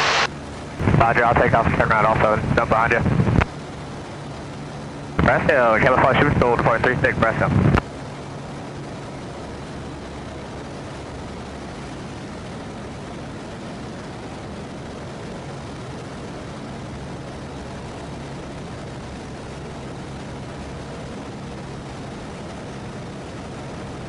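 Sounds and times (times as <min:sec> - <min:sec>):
aircraft engine and propeller drone: 0:00.0 - 0:24.0
low hum: 0:00.0 - 0:24.0
rushing air noise: 0:00.0 - 0:24.0.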